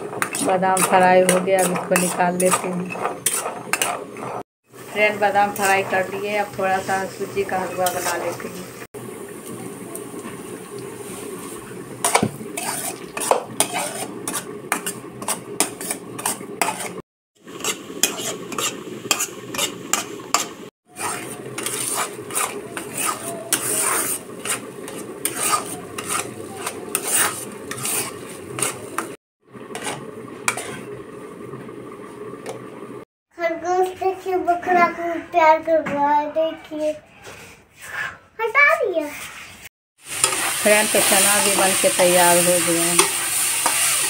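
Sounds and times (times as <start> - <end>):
metal spatula scraping a pan: 0.0 - 4.4, 5.0 - 8.6, 12.0 - 31.0, 39.0 - 44.0.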